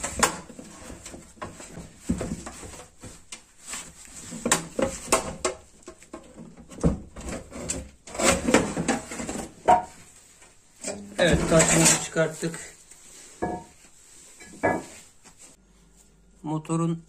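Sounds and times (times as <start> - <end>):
concrete block scraping on metal: 7.2 - 10.0, 10.8 - 12.6.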